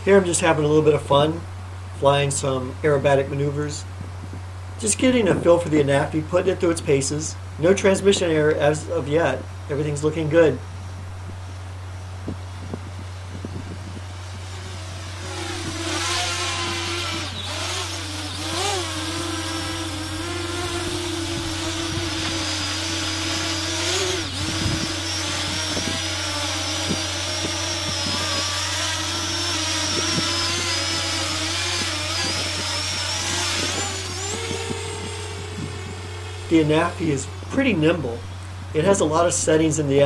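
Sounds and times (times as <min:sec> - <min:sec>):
drone propellers whining: 0:10.7 - 0:39.5.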